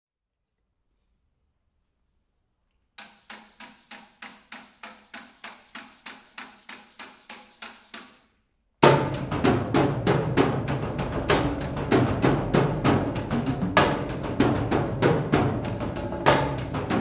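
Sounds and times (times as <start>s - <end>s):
metal percussion ringing: 3.0s - 17.0s
percussion ensemble with drums: 8.8s - 17.0s.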